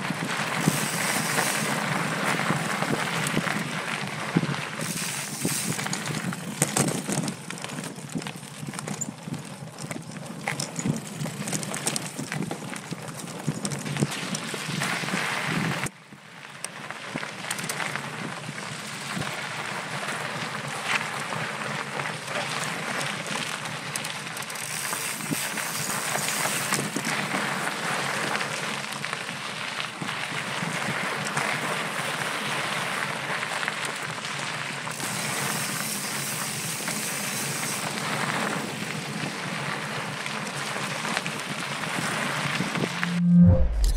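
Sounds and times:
bike rattling over bumps: 0.0 - 15.9, 16.8 - 43.0
bike tyres on gravel trail: 0.0 - 43.0
wind rushing: 42.7 - 43.9.

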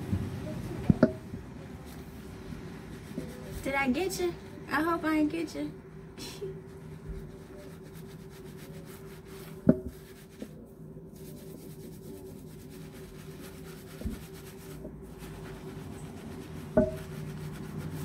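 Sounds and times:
hands scrubbing lathered hair: 1.8 - 4.3, 6.5 - 18.0.

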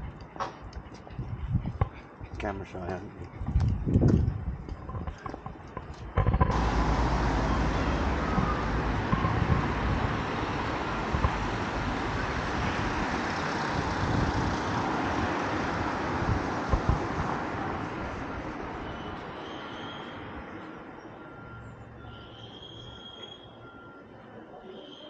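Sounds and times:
faint footsteps on pavement: 0.0 - 6.9
street traffic hiss: 5.9 - 25.0.

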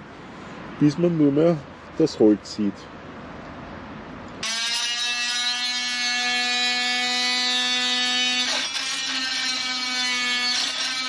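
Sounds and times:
oscillating multi-tool whining: 4.4 - 11.0.

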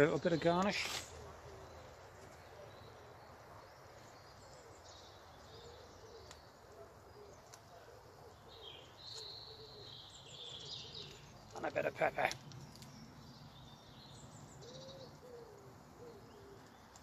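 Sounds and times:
low dove-like cooing: 1.1 - 3.6, 4.4 - 11.4, 14.6 - 17.0.

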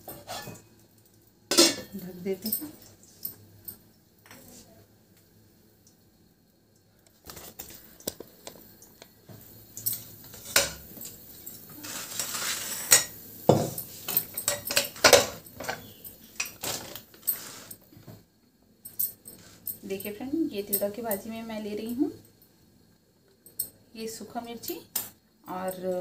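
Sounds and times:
metal kitchenware clinking: 0.0 - 0.7, 1.5 - 2.8, 9.8 - 17.8
metal scrape on stone counter: 0.1 - 0.6, 11.7 - 14.2, 17.2 - 17.8.

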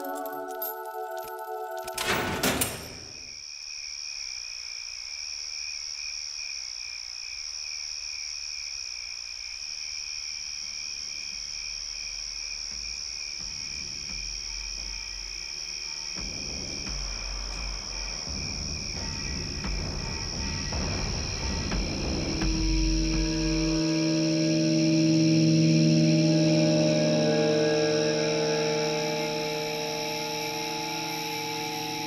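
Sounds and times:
high insect chirring: 11.5 - 32.0.

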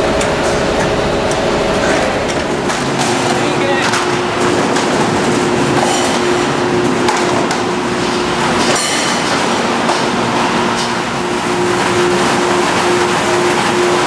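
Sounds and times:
machinery and conveyors humming: 0.0 - 14.0
plastic crates clattering: 0.3 - 11.0.

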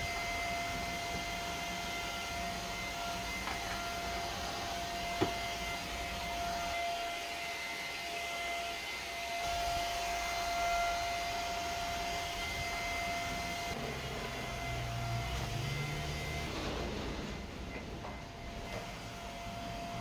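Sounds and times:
vacuum cleaner motor whine: 0.0 - 20.0
vacuum head on tiles: 2.6 - 6.7.

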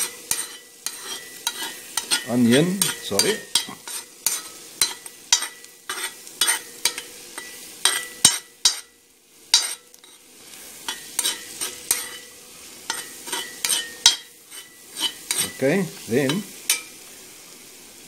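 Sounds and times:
metal spoon scraping a pot: 0.0 - 8.9, 9.5 - 10.2, 10.9 - 12.3, 12.9 - 15.6
onions sizzling: 0.0 - 18.0.

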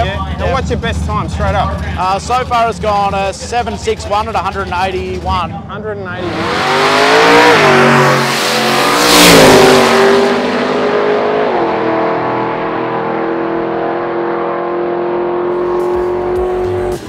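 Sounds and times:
racing car engine running hard: 0.0 - 17.0.

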